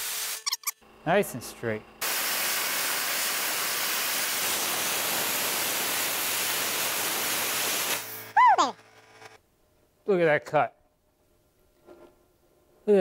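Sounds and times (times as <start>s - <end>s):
plasma cutter hissing: 2.0s - 8.3s.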